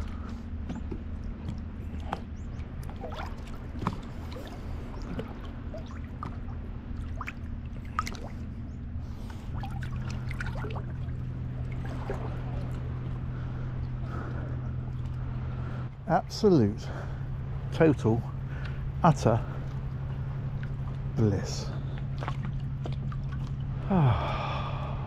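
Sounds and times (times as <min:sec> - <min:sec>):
small splashes and drips: 0:00.0 - 0:15.4, 0:21.7 - 0:23.9
low hum: 0:00.0 - 0:25.0
water lapping and trickling: 0:00.0 - 0:25.0.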